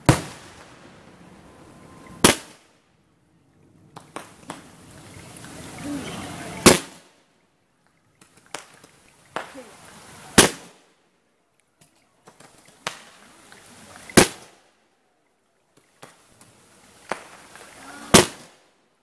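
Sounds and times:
faint firework pops: 0.0 - 1.0, 2.2 - 2.7, 3.9 - 4.8, 6.6 - 7.1, 8.2 - 9.7, 10.3 - 10.9, 11.8 - 14.6, 15.8 - 18.7
firework shells bursting: 0.0 - 2.7, 14.1 - 14.6, 15.8 - 18.7.

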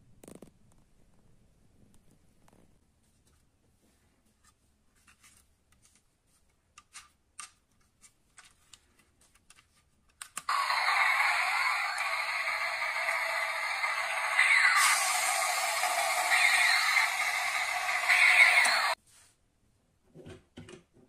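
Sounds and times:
loud hissing whir: 10.5 - 19.0.

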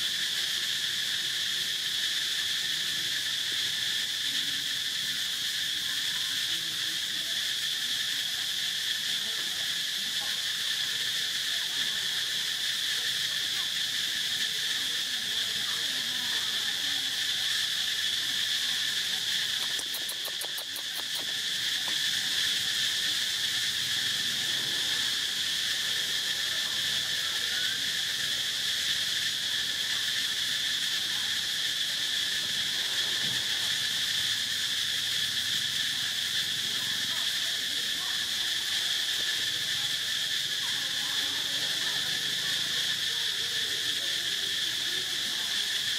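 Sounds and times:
insect chorus buzzing: 0.0 - 45.9
faint clicks: 19.6 - 22.0.

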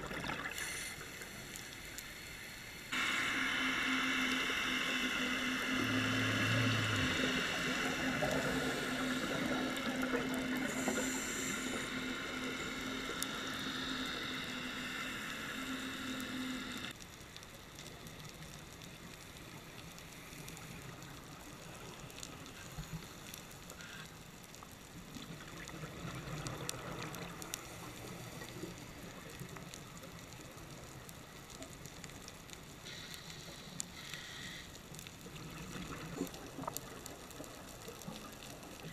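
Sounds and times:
even hiss: 0.0 - 17.0, 26.7 - 38.9
faint clicks: 0.0 - 38.9
underwater drone with held tones: 0.0 - 38.9.

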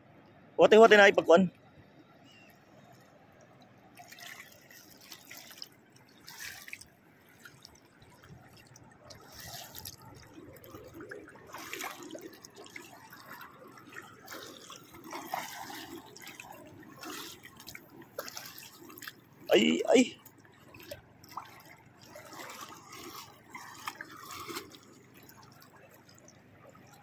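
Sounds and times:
water splashing from wading: 0.3 - 27.0.

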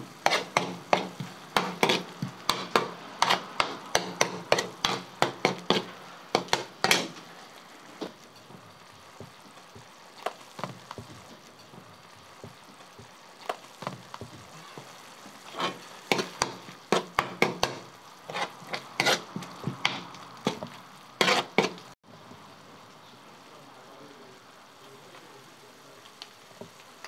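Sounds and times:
meat sizzling: 0.0 - 27.0
metal spoon scraping steel pan: 0.2 - 7.2, 15.4 - 21.9.

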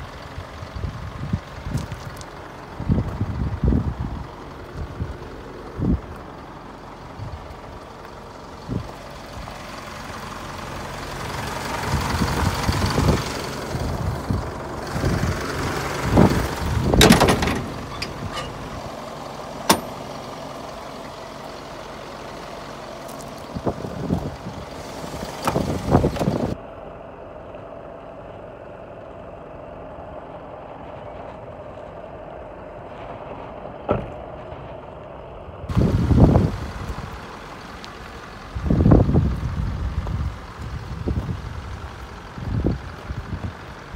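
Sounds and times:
vehicle engine running: 0.0 - 43.9.

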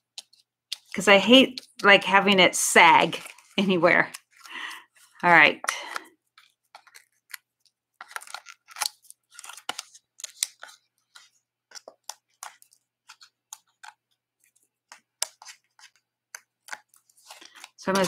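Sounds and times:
paper crackling and rustling: 6.0 - 18.0.

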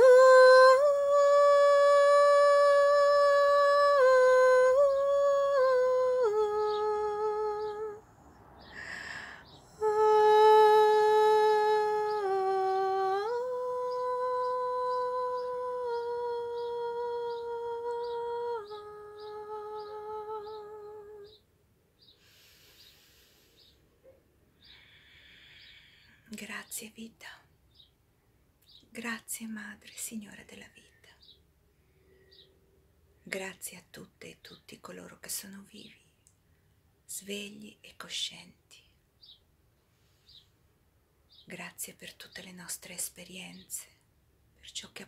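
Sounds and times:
woman singing wordless chant: 0.0 - 8.0, 8.7 - 21.4.

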